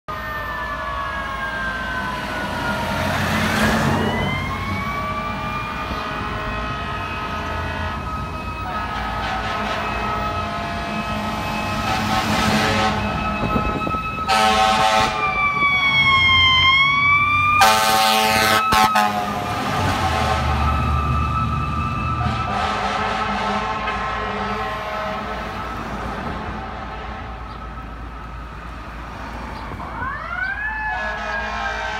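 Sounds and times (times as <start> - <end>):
sirens wailing: 0.1 - 31.9
truck and traffic engines rumbling: 0.1 - 31.9
air horn blasts: 5.9 - 8.0, 8.6 - 15.4, 17.6 - 20.8, 22.2 - 25.6, 30.8 - 31.9.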